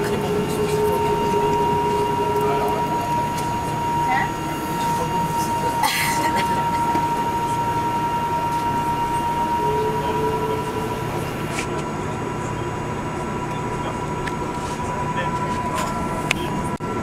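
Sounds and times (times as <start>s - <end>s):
engines and wheels rumbling: 0.0s - 17.0s
high engine whine: 0.0s - 17.0s.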